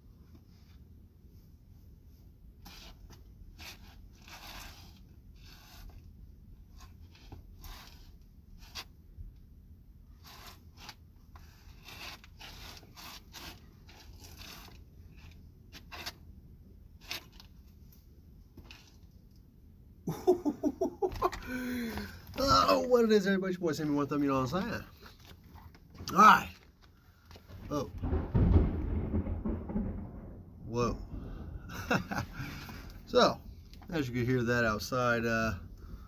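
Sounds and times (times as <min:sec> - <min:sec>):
clothing brushing: 0:02.6 - 0:06.1, 0:06.7 - 0:08.9, 0:10.2 - 0:16.2.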